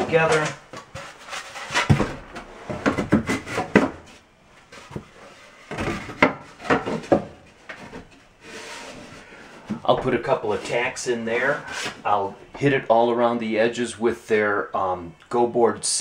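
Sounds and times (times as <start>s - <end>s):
foam board scraping rubs: 0.1s - 3.7s, 8.4s - 9.5s, 10.6s - 12.2s.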